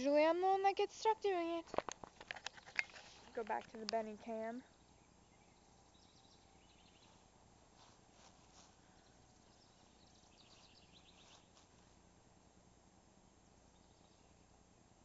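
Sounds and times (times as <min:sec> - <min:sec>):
faint chirping ticks: 0:08.5 - 0:11.7.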